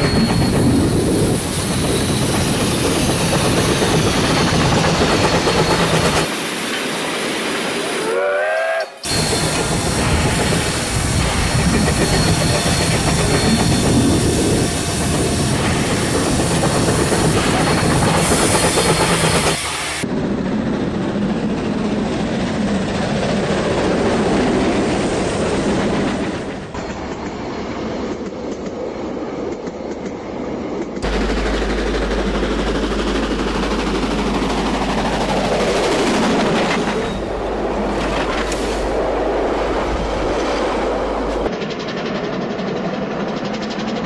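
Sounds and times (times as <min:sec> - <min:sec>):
train wheel clatter: 0:00.0 - 0:07.0, 0:09.1 - 0:20.0, 0:30.8 - 0:39.0, 0:39.9 - 0:44.0
steam hiss: 0:04.9 - 0:20.0
steam whistle: 0:08.0 - 0:10.0.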